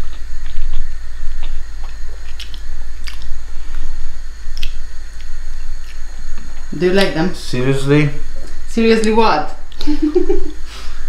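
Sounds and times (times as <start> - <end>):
person chewing: 0.0 - 6.7
mouth clicks and squishes: 4.5 - 6.5.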